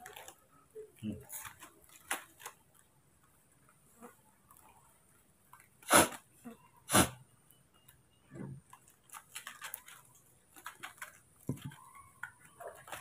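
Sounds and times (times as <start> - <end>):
foil packet crinkling: 0.0 - 0.4, 1.2 - 2.9, 8.7 - 13.0.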